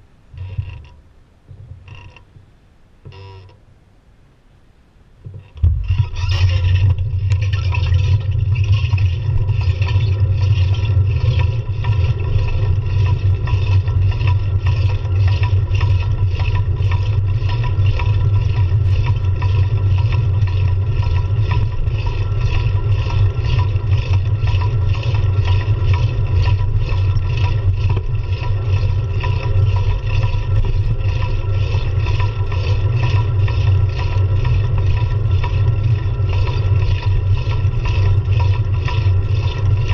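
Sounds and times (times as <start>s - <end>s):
wind buffeting and road rumble: 5.2s - 31.6s.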